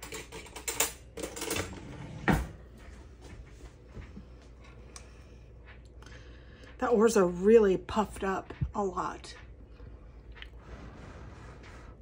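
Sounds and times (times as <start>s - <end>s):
drawer and utensils clattering: 0.0s - 2.7s.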